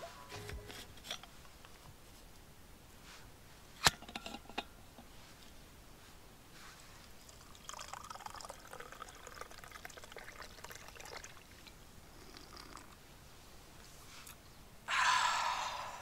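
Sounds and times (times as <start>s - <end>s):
drink trickling into a cup: 7.1s - 13.0s.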